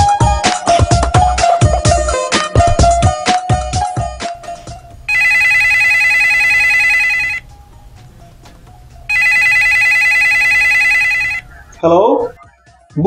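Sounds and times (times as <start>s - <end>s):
telephone ringing: 4.4s - 11.8s.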